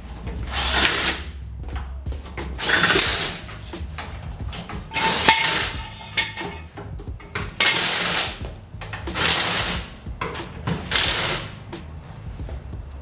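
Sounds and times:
steel hand tools clanking: 4.6s - 11.1s
harsh bursts of noise: 9.1s - 9.9s.

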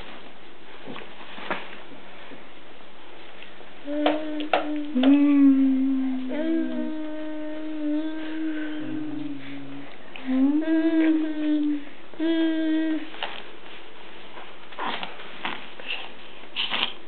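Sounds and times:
person humming a slow tune: 3.8s - 13.3s.

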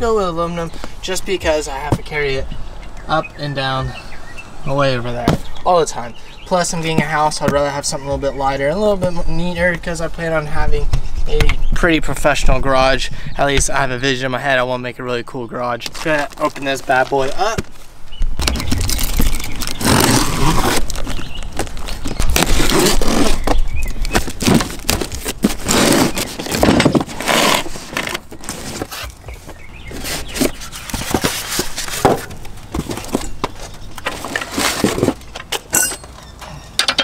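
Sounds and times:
cardboard scraping and rustling: 15.8s - 35.7s
sharp clicks and knocks: 32.0s - 37.0s.

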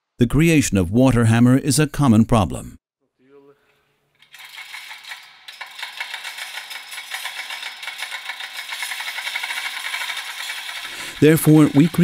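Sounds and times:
hoist chain rattling and clicking: 4.2s - 12.0s.

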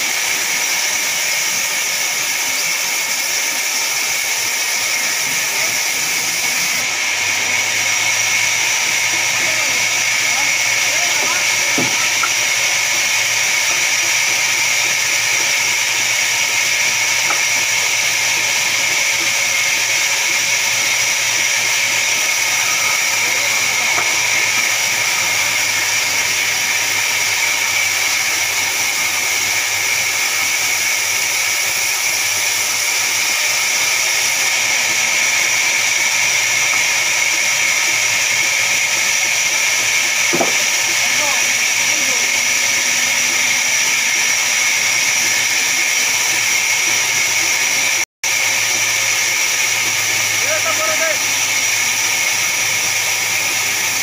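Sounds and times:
band saw cutting log: 0.0s - 54.0s.

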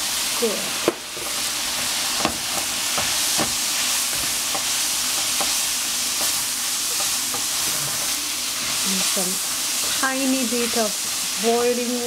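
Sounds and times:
food sizzling in a frying pan: 0.0s - 12.0s
wooden spatula scraping a pan: 6.2s - 11.5s.

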